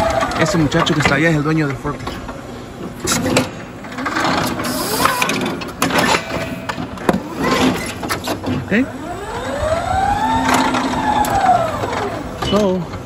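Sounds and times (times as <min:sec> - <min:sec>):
electric forklift whir: 0:00.0 - 0:13.0
forklift mast clunks and rattles: 0:00.1 - 0:08.7.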